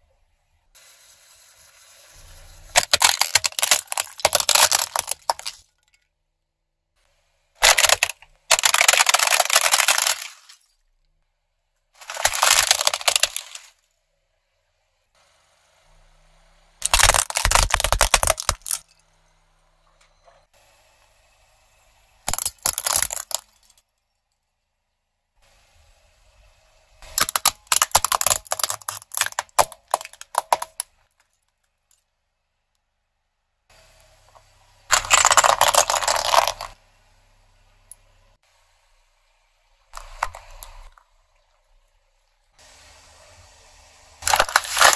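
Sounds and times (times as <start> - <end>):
toy car cracking and crunching: 2.7 - 5.7, 7.6 - 10.7, 12.0 - 13.8, 16.8 - 19.0, 22.3 - 23.8, 27.0 - 32.0, 34.9 - 36.8, 40.0 - 41.0, 44.2 - 44.9.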